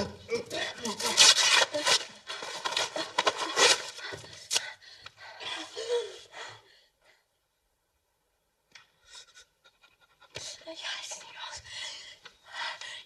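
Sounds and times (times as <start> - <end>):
wallpaper tearing: 0.8 - 3.9.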